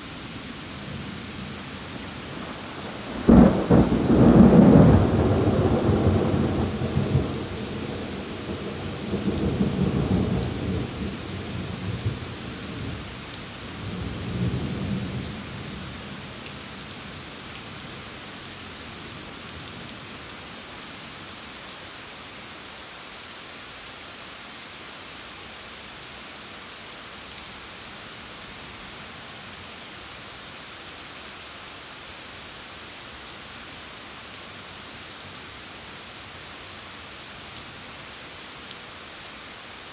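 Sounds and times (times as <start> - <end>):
steady rain: 0.0 - 39.9
thunder rumbling: 2.3 - 12.3.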